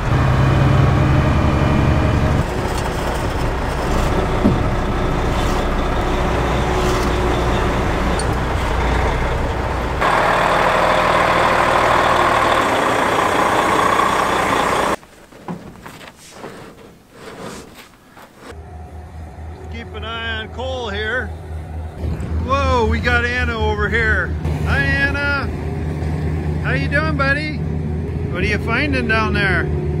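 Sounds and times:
diesel truck engine running: 0:00.0 - 0:16.1.

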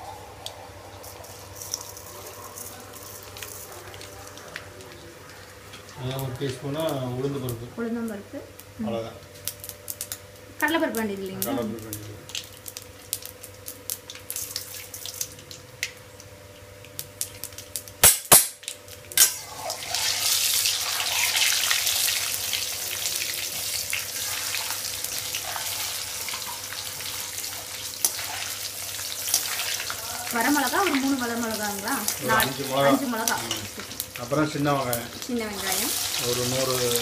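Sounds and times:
hot oil sizzling: 0:00.0 - 0:37.0.

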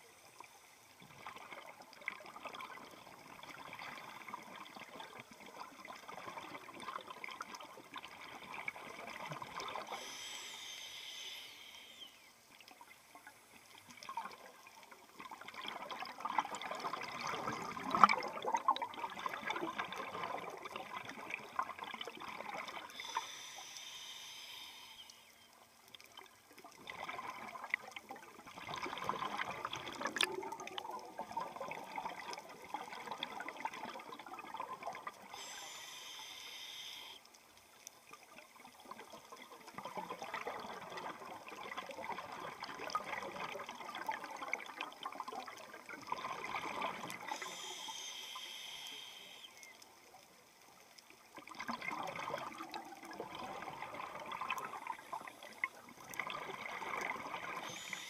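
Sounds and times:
exhaled bubbles gurgling: 0:01.0 - 0:10.6, 0:12.6 - 0:23.4, 0:26.1 - 0:35.8, 0:38.3 - 0:48.0, 0:51.1 - 0:58.0
regulator inhalation hiss: 0:09.8 - 0:12.3, 0:22.9 - 0:25.4, 0:35.3 - 0:37.2, 0:47.3 - 0:49.6, 0:57.6 - 0:58.0.

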